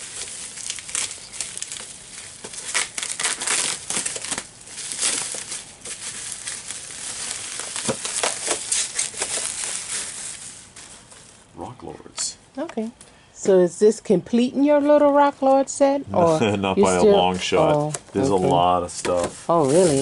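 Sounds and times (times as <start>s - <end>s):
bubble wrap crinkling: 0.0s - 11.5s, 17.3s - 20.0s.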